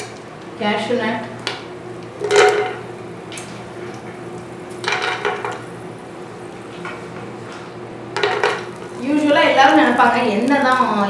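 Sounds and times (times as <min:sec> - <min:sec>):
steady low hum: 0:00.0 - 0:11.0
nuts sizzling in hot oil: 0:08.2 - 0:11.0.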